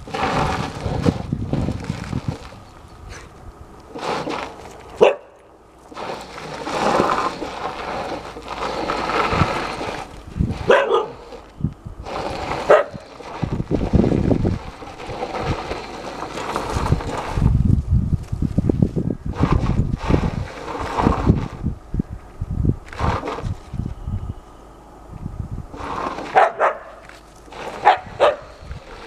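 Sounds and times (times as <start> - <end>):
dog barking: 5.0 - 5.4, 10.7 - 11.2, 26.4 - 27.0, 27.8 - 28.5.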